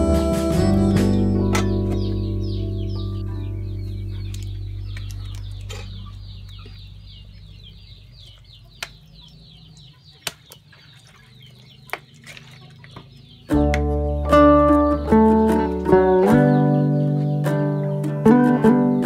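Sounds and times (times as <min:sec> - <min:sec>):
guitar music: 0:00.0 - 0:07.3, 0:13.5 - 0:19.0
bird chirping rapidly: 0:00.8 - 0:19.0.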